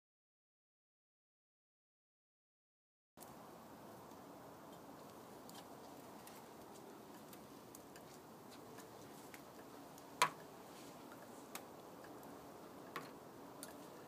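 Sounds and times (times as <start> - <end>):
light ticks and clicks: 4.0 - 14.0.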